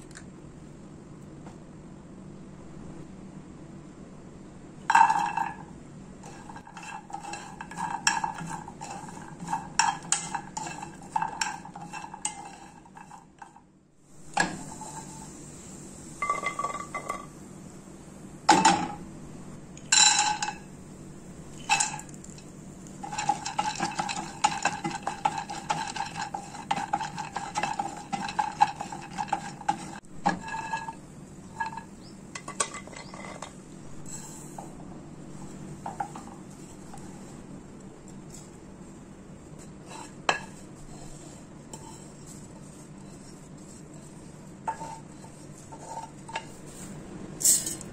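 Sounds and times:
steady low hum: 0.0s - 47.9s
nuts clattering in frying pan: 4.9s - 5.6s, 6.2s - 13.6s, 16.2s - 17.3s, 19.8s - 20.7s, 21.5s - 34.4s.

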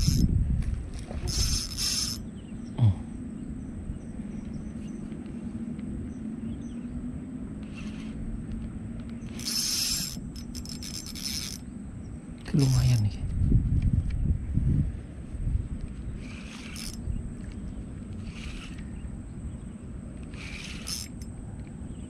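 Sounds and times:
fishing reel whirring: 0.0s - 2.3s, 7.6s - 8.4s, 9.2s - 11.9s, 16.1s - 19.2s, 20.2s - 21.4s
steady low hum: 0.0s - 22.0s.

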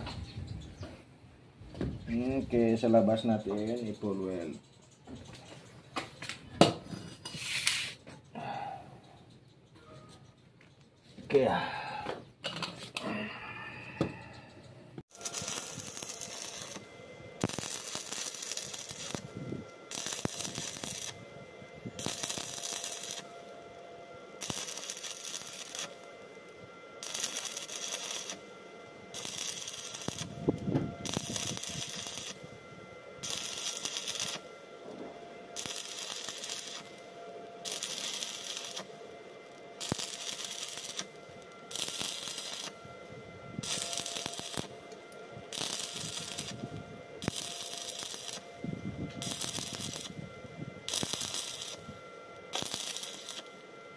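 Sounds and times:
welding arc crackling: 15.0s - 34.7s, 35.3s - 42.9s, 43.5s - 53.6s.

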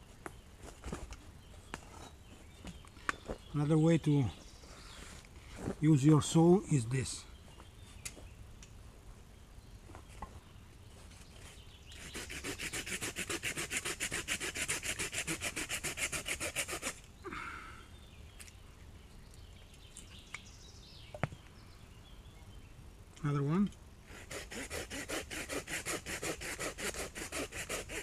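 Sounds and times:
hand saw cutting wood: 12.0s - 17.0s, 24.1s - 28.0s.

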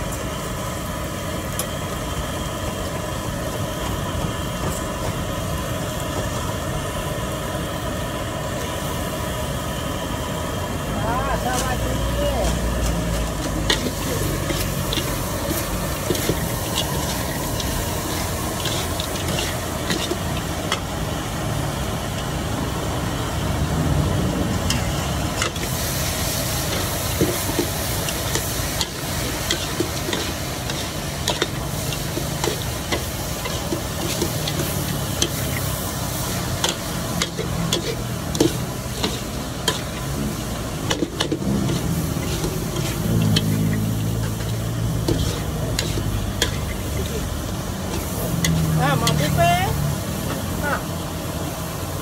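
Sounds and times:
sizzling hiss: 0.0s - 52.0s
metal utensils clinking on pans: 12.4s - 20.9s, 26.6s - 40.2s, 40.8s - 49.5s.

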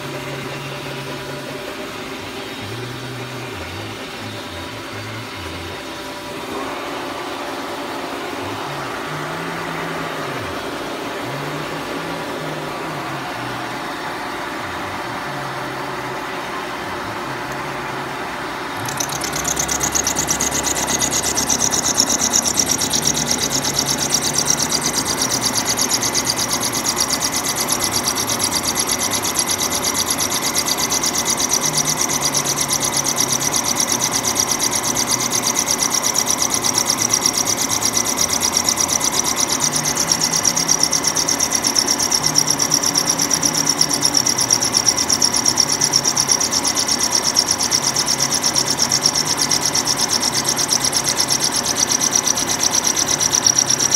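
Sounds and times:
milling cutter cutting metal: 18.8s - 53.9s.

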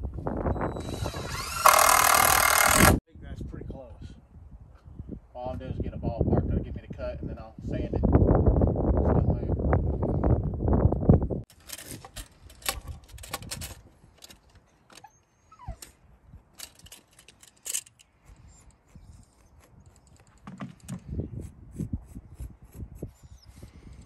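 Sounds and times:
pencil scratching on wood: 18.1s - 23.7s.

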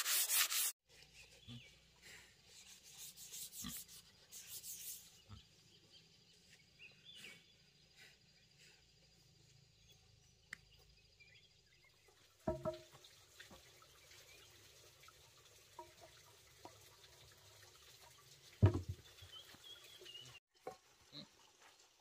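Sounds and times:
wooden knocks from tree stump: 12.5s - 12.9s, 18.6s - 19.0s.

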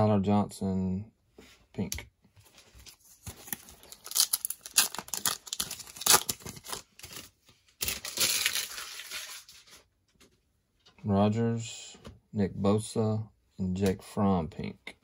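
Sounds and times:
plastic wrapper crinkling and tearing: 2.8s - 9.9s.

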